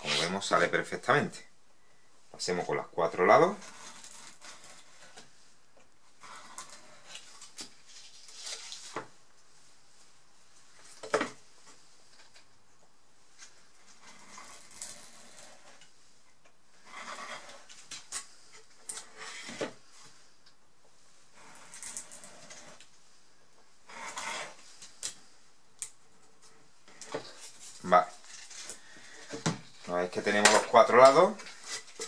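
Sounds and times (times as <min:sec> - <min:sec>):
knife scraping through paper: 0:00.0 - 0:00.4.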